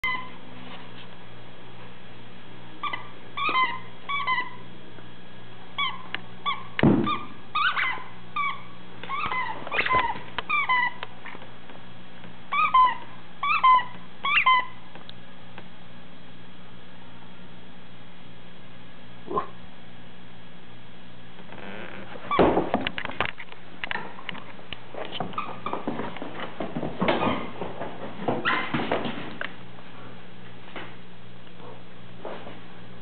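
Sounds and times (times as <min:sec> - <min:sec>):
thump: 0:06.8 - 0:07.2
squeaky toy squeaking: 0:07.6 - 0:11.0, 0:12.5 - 0:14.7.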